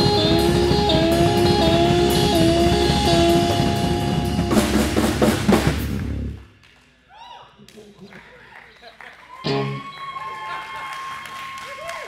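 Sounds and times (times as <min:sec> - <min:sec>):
guitar bent notes: 0:00.0 - 0:06.4, 0:09.4 - 0:09.8
hard drum and cymbal hits: 0:00.0 - 0:06.4
blues band playing: 0:00.0 - 0:06.5, 0:09.4 - 0:10.0.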